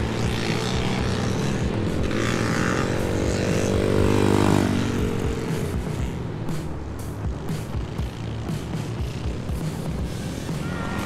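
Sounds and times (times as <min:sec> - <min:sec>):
dirt bike passing by: 0:00.0 - 0:11.0.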